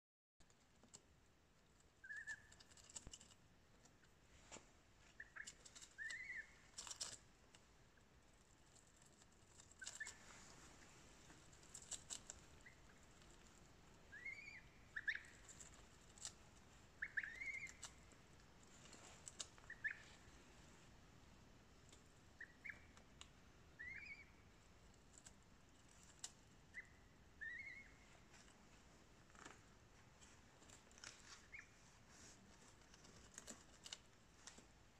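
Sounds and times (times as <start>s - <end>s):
bills pecking cabbage leaf: 0.4s - 34.9s
goslings peeping: 2.0s - 3.3s, 5.1s - 7.3s, 8.9s - 20.3s, 22.2s - 24.8s, 26.0s - 28.3s, 31.4s - 32.1s.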